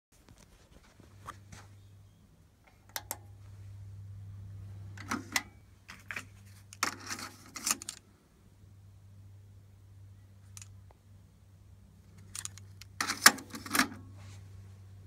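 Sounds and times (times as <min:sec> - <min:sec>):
low steady hum: 0:00.2 - 0:15.0
cassette deck controls clicking: 0:02.7 - 0:03.3, 0:05.0 - 0:05.6, 0:12.4 - 0:14.0.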